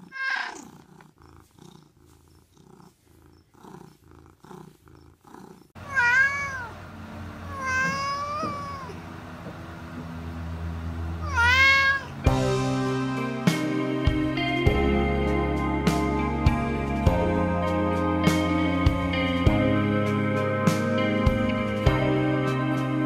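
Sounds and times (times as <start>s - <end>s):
cat meowing: 0.0s - 0.6s, 5.8s - 6.7s, 7.5s - 9.0s, 11.2s - 12.2s
cat purring: 0.0s - 9.0s.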